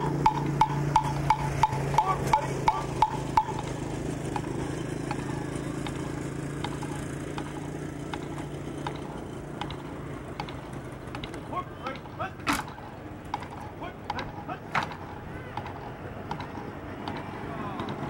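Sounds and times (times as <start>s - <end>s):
steady low hum: 0.0s - 18.0s
sharp metronome clicks: 0.1s - 5.2s, 6.6s - 9.8s, 16.3s - 18.0s.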